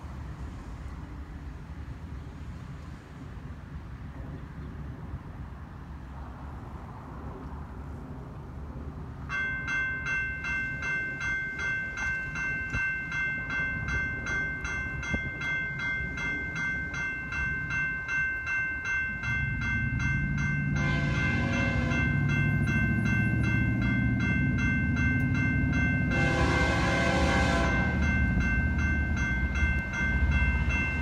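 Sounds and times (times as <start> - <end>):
crossing bell ringing: 9.2 - 31.0
locomotive rumble: 9.9 - 31.0
locomotive horn: 20.7 - 22.3, 26.1 - 28.1.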